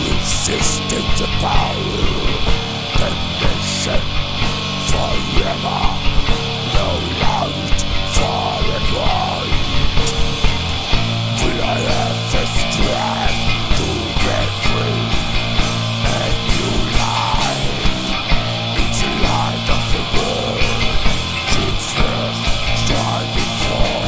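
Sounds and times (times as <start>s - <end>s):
distorted electric guitars: 0.0s - 24.0s
steady drum beat: 0.0s - 24.0s.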